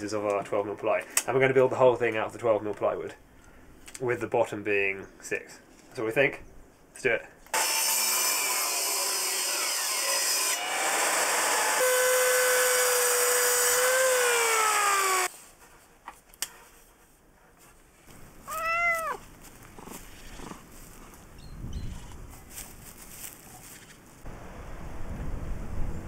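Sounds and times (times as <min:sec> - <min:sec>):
table saw cutting plywood: 0:07.6 - 0:15.3
mitre saw winding down: 0:08.7 - 0:15.3
cat meowing: 0:18.4 - 0:19.2.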